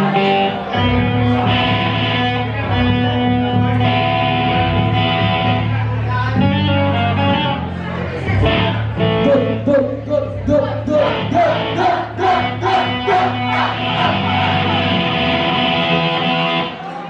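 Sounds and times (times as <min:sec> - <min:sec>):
live rock band: 0:00.0 - 0:07.8, 0:11.0 - 0:16.8.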